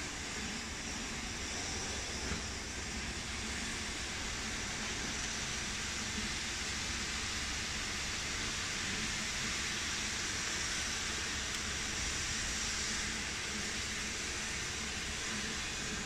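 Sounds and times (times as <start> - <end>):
steam hissing from locomotive: 0.0 - 16.0.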